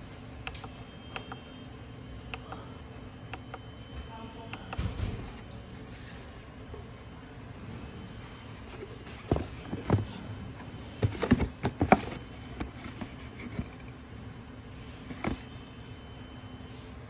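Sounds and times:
faint steady hum: 0.0s - 17.0s
cardboard boxes knocking: 9.1s - 10.2s, 11.0s - 13.1s.

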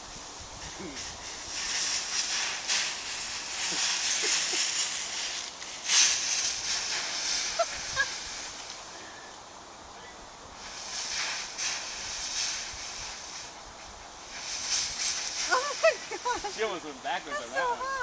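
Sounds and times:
dry leaves crunching underfoot: 0.1s - 9.0s.

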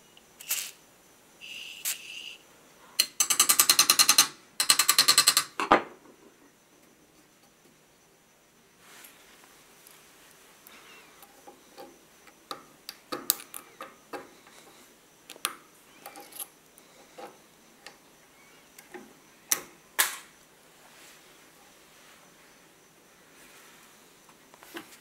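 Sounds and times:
metal pick clicking and scraping: 15.3s - 18.0s.

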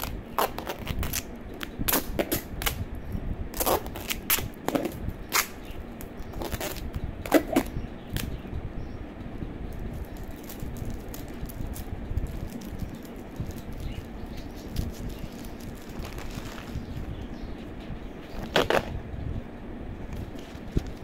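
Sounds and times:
plastic bag crinkling: 10.0s - 16.8s.

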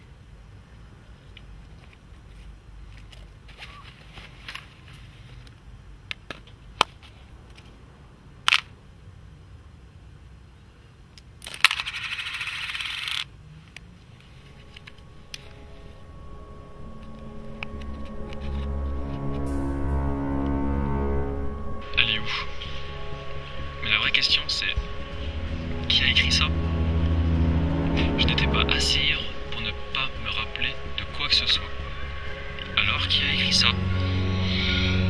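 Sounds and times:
low dark music: 14.2s - 35.0s.

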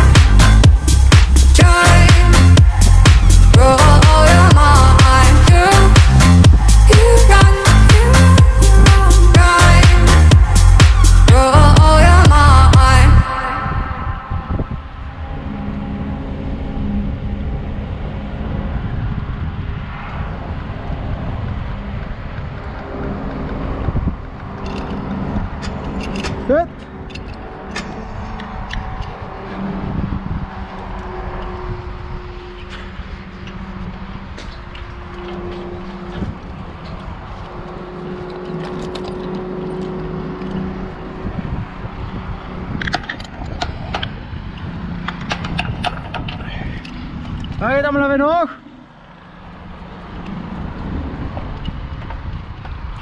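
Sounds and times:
steady engine-like hum: 0.0s - 53.0s
wind buffeting microphone: 0.0s - 53.0s
sharp metal clinks: 24.6s - 29.2s.

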